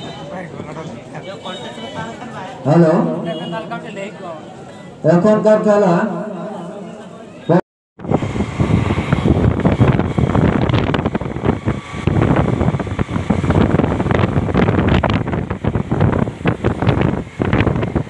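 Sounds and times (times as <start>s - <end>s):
rushing riding noise: 8.0s - 18.0s
wind buffeting microphone: 8.0s - 18.0s.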